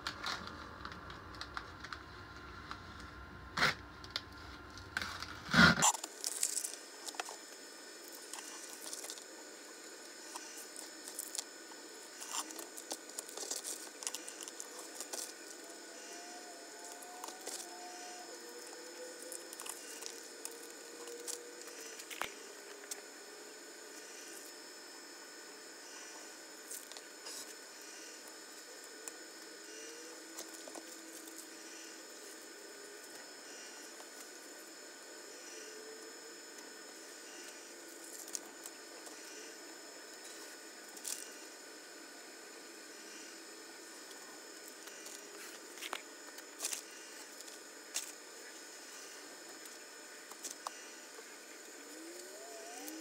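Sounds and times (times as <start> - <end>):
masking tape crackling: 0.0 - 24.6.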